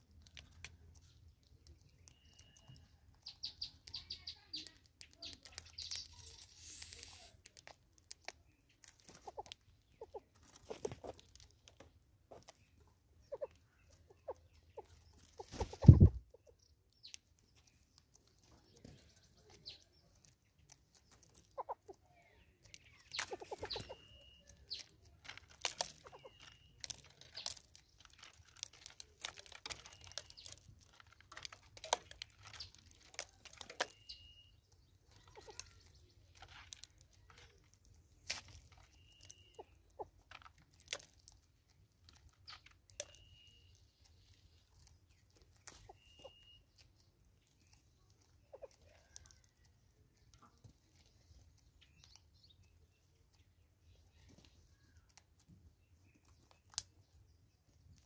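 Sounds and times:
pecking and tapping on wood: 0:00.0 - 0:06.1, 0:16.9 - 0:34.1, 0:34.7 - 0:43.3
high bird chirps and whistles: 0:01.9 - 0:07.4, 0:22.8 - 0:24.9, 0:26.0 - 0:26.8, 0:33.8 - 0:34.7, 0:38.8 - 0:40.0, 0:42.5 - 0:43.9, 0:45.7 - 0:46.8.

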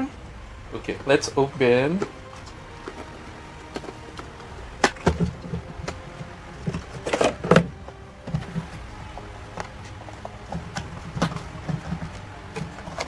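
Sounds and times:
box rustling scrape: 0:02.3 - 0:08.7.

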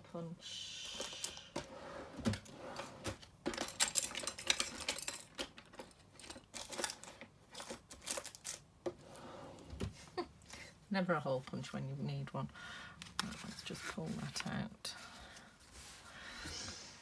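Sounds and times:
craft tools clattering: 0:03.4 - 0:08.6.

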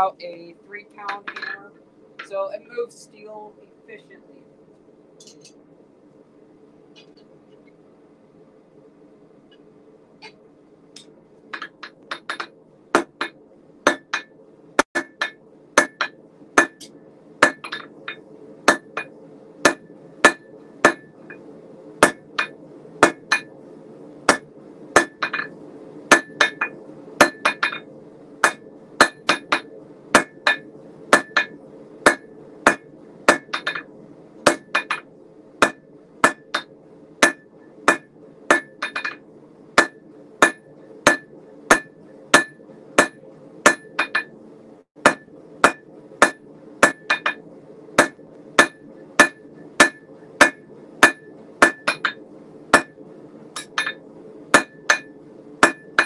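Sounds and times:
gas forge roaring: 0:00.0 - 0:56.0
hammer striking steel on anvil: 0:11.6 - 0:14.3, 0:15.0 - 0:21.2, 0:22.0 - 0:23.5, 0:24.3 - 0:25.5, 0:26.1 - 0:27.8, 0:28.4 - 0:33.9, 0:34.5 - 0:39.2, 0:39.8 - 0:44.3, 0:45.0 - 0:47.4, 0:48.0 - 0:53.0, 0:53.6 - 0:56.0.

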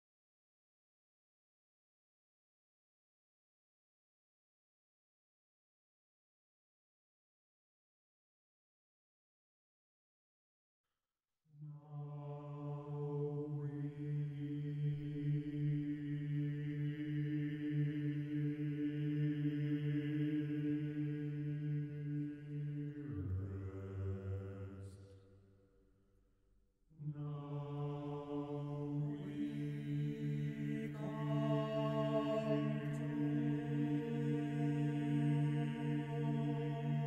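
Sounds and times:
male choir singing held chords: 0:12.0 - 0:25.2, 0:27.0 - 0:37.0.

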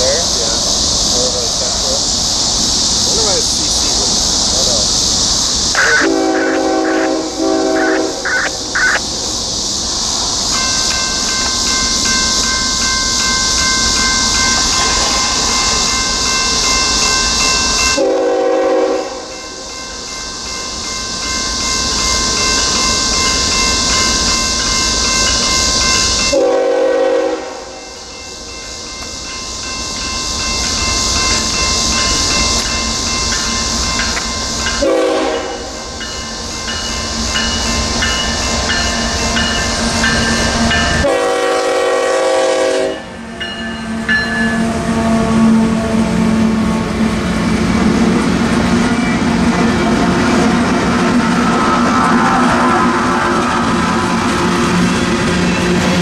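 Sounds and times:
steady high hiss: 0:00.0 - 0:44.6
crossing bell ringing: 0:05.7 - 0:09.0, 0:10.5 - 0:18.2, 0:19.0 - 0:26.5, 0:27.5 - 0:41.3, 0:42.8 - 0:45.4, 0:48.9 - 0:56.0
locomotive horn blasts: 0:05.8 - 0:09.0, 0:18.0 - 0:19.4, 0:26.3 - 0:27.8, 0:34.8 - 0:35.8, 0:41.0 - 0:43.3, 0:44.6 - 0:46.9.

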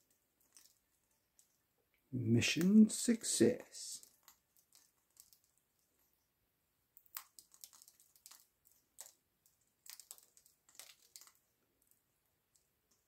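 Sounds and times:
parrot crunching food: 0:00.0 - 0:01.8, 0:04.0 - 0:06.2, 0:06.9 - 0:13.0.

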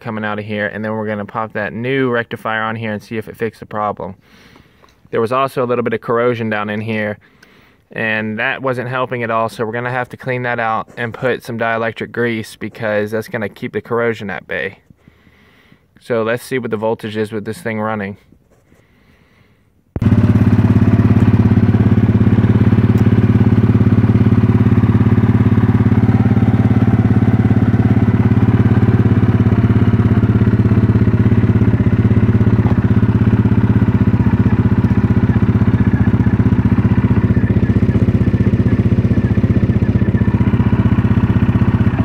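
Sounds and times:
atv engine running: 0:20.0 - 0:42.0.

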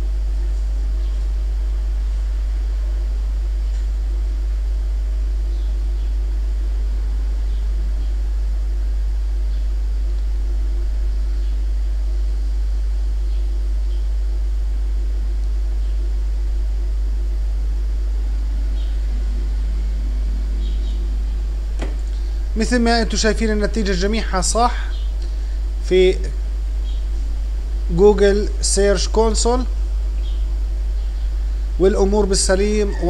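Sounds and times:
steady low hum: 0:00.0 - 0:33.0.

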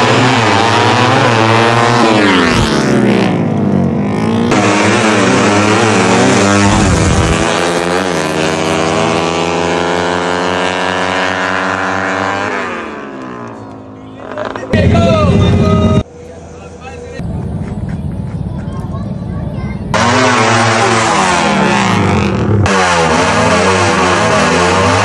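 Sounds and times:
motorcycles revving and accelerating: 0:00.0 - 0:16.1, 0:19.9 - 0:25.0.

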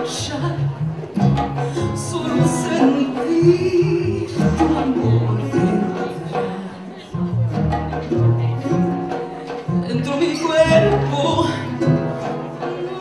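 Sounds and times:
woman singing: 0:00.0 - 0:00.8, 0:01.6 - 0:07.1
strummed acoustic guitars: 0:00.0 - 0:13.0.

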